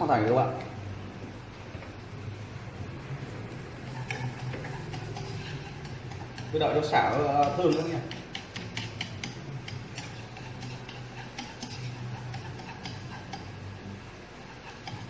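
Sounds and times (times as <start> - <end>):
food frying in hot oil: 0.0 - 15.0
chopsticks clicking: 7.4 - 13.5.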